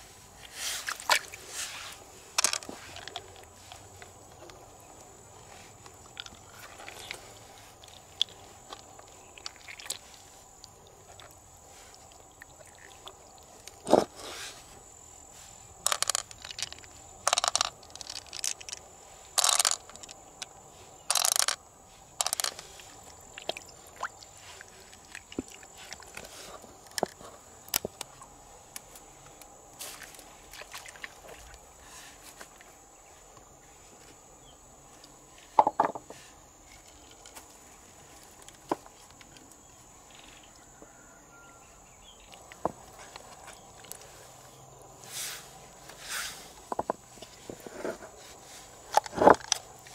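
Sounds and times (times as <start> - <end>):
wet squelches and scrapes: 0.0 - 32.8.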